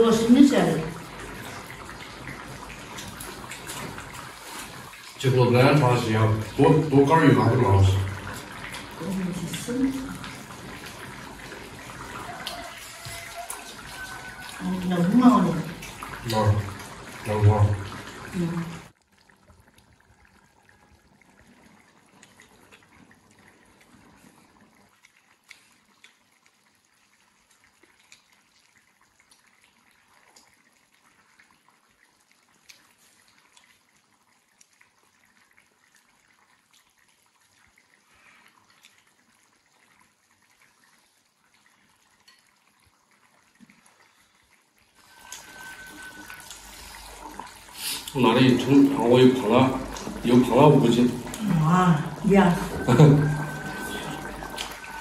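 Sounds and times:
faint steady hiss: 0:32.2 - 0:55.0.

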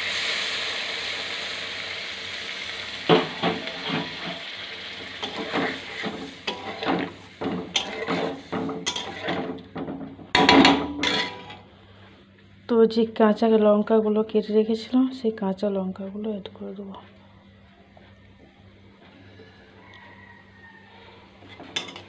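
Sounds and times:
curry sizzling in a pan: 0:00.0 - 0:11.6
metal spatula scraping a pan: 0:03.4 - 0:04.4, 0:05.2 - 0:09.7, 0:10.4 - 0:11.6.

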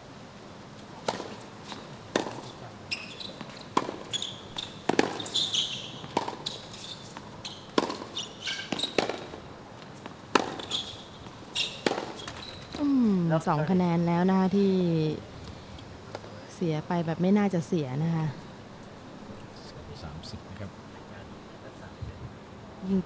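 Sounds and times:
racket hitting tennis ball: 0:01.0 - 0:02.6, 0:03.3 - 0:12.6
tennis ball bouncing: 0:01.0 - 0:12.9
shoe squeaks on court: 0:01.1 - 0:09.3, 0:10.4 - 0:12.8.

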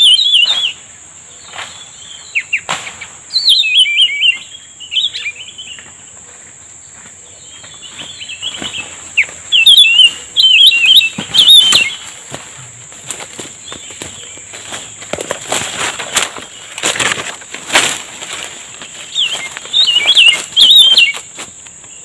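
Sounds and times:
bird chattering warbled song: 0:00.0 - 0:05.9, 0:07.4 - 0:12.1, 0:18.8 - 0:21.3.

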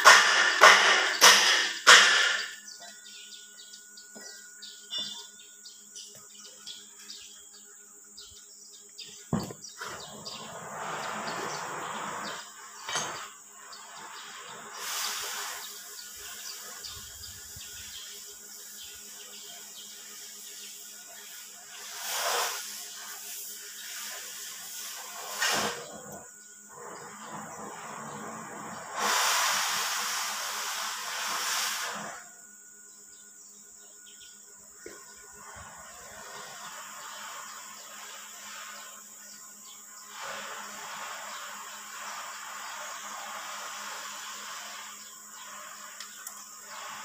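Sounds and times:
steady high hiss: 0:00.0 - 0:47.0.

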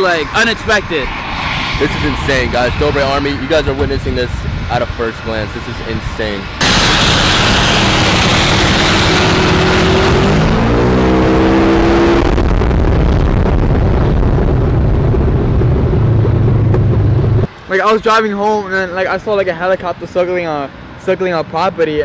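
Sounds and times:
wind noise on microphone: 0:00.0 - 0:17.5
utility vehicle engine running: 0:14.6 - 0:17.5.

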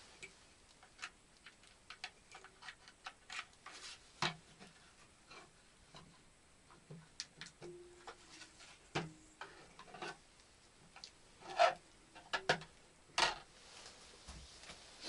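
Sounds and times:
scraping rustle: 0:02.3 - 0:06.2, 0:08.1 - 0:10.2, 0:13.2 - 0:15.0.

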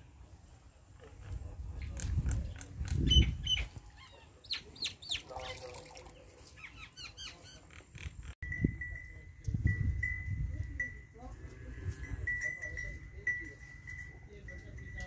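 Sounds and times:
small birds chirping: 0:01.8 - 0:08.4.

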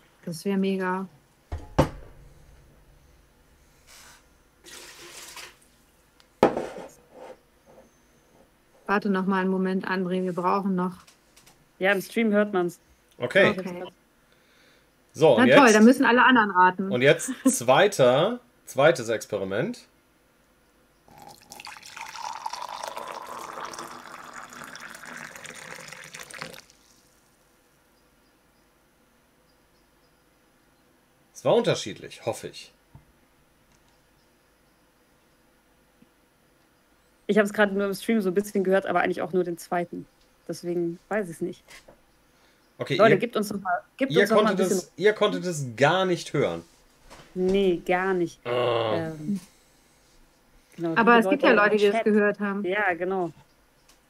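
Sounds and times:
loud knock: 0:01.5 - 0:02.2
water sloshing in a mug: 0:04.7 - 0:05.6, 0:21.1 - 0:27.1.

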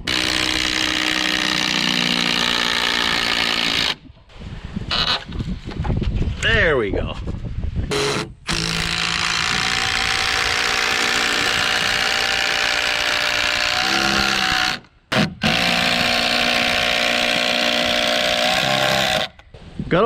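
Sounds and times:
impact driver hammering screw: 0:07.9 - 0:19.4.

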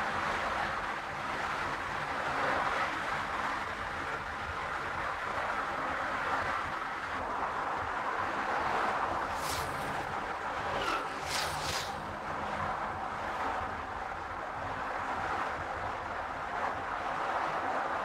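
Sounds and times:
low engine hum: 0:00.0 - 0:18.0
tyre and wind rush: 0:06.4 - 0:16.6
brief whoosh: 0:09.2 - 0:12.2.

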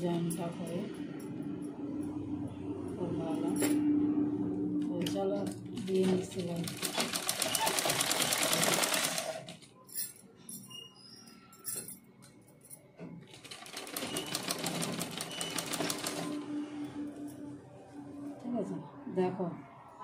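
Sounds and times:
sewing machine stitching: 0:05.8 - 0:09.6, 0:13.3 - 0:16.4.

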